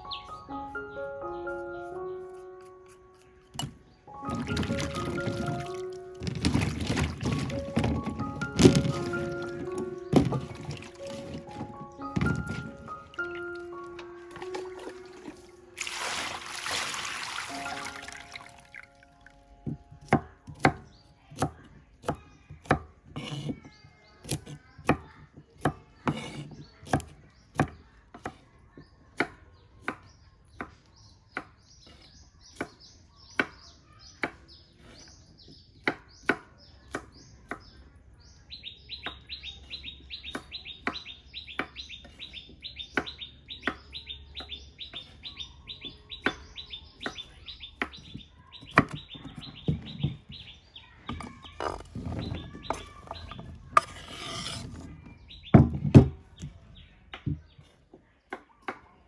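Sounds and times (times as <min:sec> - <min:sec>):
bird rapid high chirps: 0:00.0 - 0:03.2, 0:38.4 - 0:51.4
birds chirping: 0:00.0 - 0:58.0
knife chopping on wooden board: 0:19.9 - 0:28.5.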